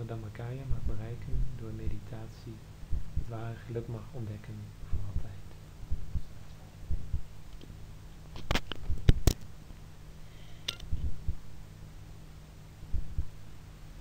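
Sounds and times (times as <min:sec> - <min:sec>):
low hum: 0:00.0 - 0:14.0
sharp clicks and knocks: 0:08.3 - 0:09.5, 0:10.6 - 0:11.1.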